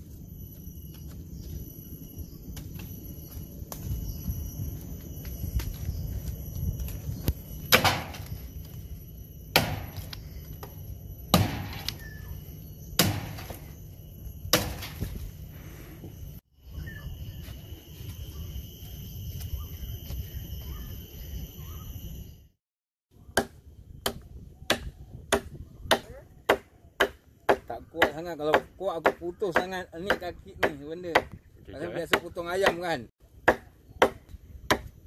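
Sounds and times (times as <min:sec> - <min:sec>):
cleaver chopping tree branch: 0:07.7 - 0:08.4, 0:09.5 - 0:10.2, 0:11.3 - 0:12.1, 0:13.0 - 0:13.6, 0:14.5 - 0:15.0, 0:23.3 - 0:31.4, 0:32.1 - 0:34.9.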